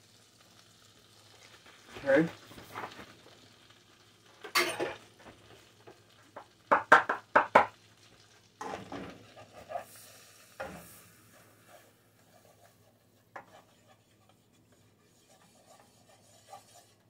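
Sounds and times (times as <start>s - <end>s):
wooden spoon stirring in a pot: 5.2s - 17.0s
spoon knocking against pot: 6.7s - 7.7s.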